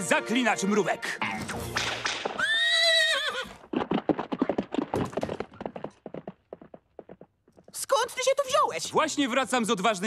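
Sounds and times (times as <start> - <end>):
clip-clop hoofbeats: 2.3 - 8.2
horse whinny: 2.4 - 3.7.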